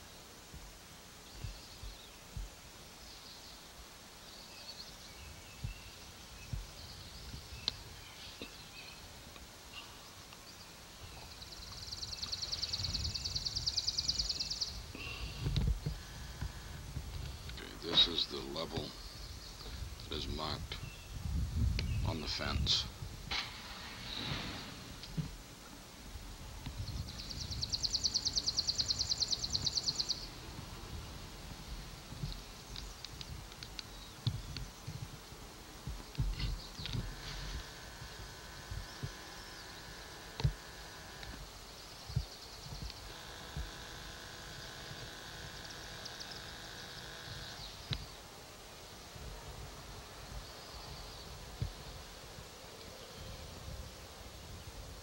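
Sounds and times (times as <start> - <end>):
songbird trill: 0.0 - 22.9, 26.6 - 48.3, 50.0 - 55.0
bird chirps: 9.7 - 16.6, 26.8 - 30.4
low thumps on microphone: 15.3 - 19.0, 22.9 - 25.4, 34.2 - 35.2, 35.8 - 37.6.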